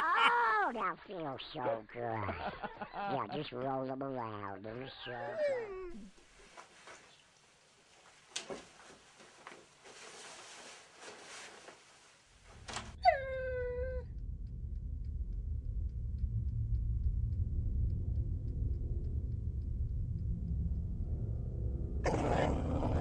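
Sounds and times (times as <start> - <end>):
cat yowling: 0.0 - 0.6
low rumbling drone: 12.6 - 23.0.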